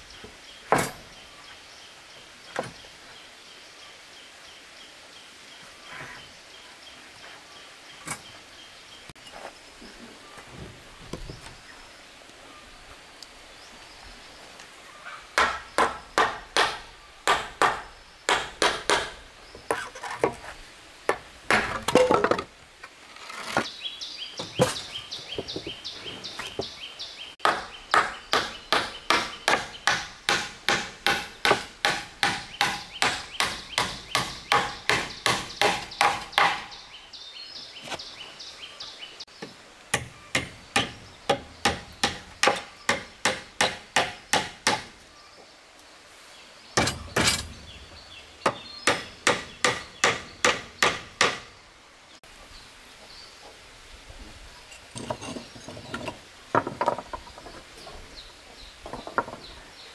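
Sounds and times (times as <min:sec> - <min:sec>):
hammer striking wooden boards: 0:15.4 - 0:19.2, 0:27.4 - 0:36.7, 0:39.9 - 0:44.9, 0:46.8 - 0:47.5, 0:48.4 - 0:51.5.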